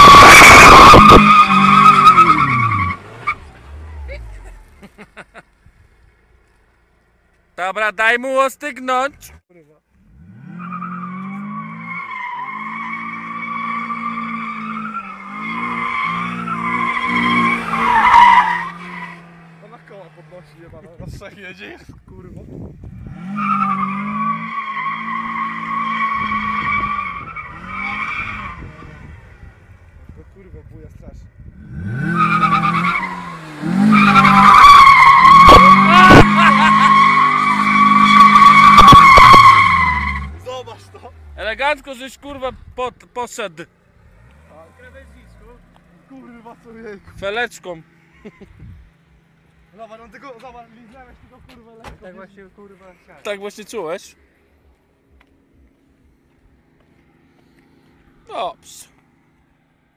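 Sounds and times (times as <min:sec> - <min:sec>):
tyres squealing: 0:00.0 - 0:04.3, 0:10.7 - 0:20.4, 0:32.0 - 0:41.3
car engine revving: 0:00.0 - 0:04.8, 0:10.0 - 0:21.0, 0:22.8 - 0:30.1, 0:31.4 - 0:42.0, 0:43.8 - 0:48.1.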